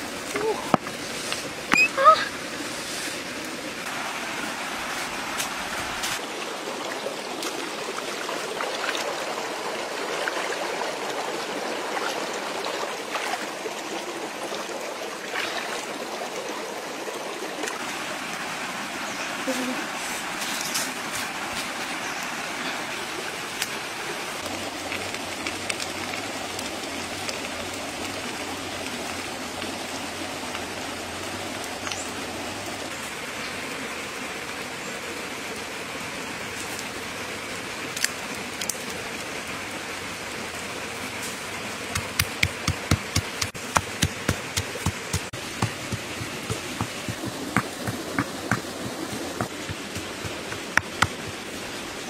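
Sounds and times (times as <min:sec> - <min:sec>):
steady rushing hiss: 0:39.7 - 0:52.0
pestle pounding in stone mortar: 0:42.0 - 0:51.4.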